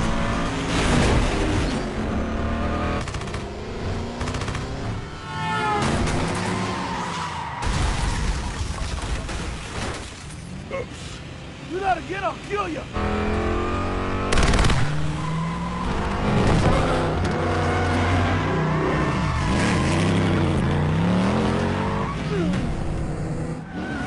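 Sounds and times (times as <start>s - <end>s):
truck and car engines revving: 0.0s - 7.7s, 10.5s - 24.0s
tyres skidding: 10.4s - 24.0s.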